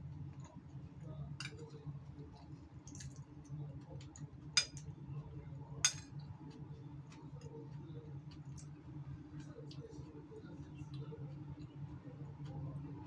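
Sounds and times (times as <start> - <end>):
metal spoon clinking on bowl: 4.6 - 4.8, 5.8 - 6.1
soft chewing and mouth clicks: 6.1 - 12.7.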